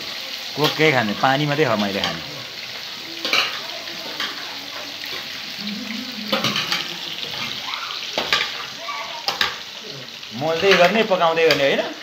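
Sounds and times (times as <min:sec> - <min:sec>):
fish sizzling in hot oil: 0:00.0 - 0:12.0.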